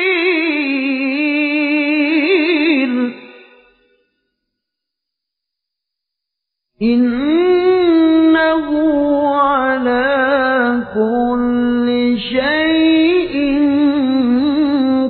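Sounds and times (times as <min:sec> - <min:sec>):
man reciting melodically: 0:07.0 - 0:15.0.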